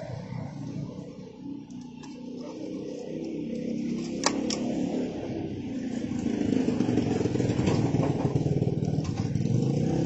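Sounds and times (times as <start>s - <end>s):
small motorcycle engine running: 0.0s - 10.0s.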